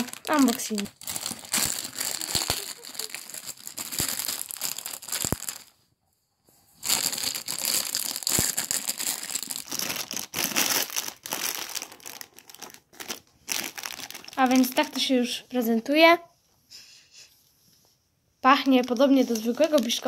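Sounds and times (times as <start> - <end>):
plastic bag crinkling: 0.0 - 5.8, 6.8 - 15.1, 18.6 - 20.0.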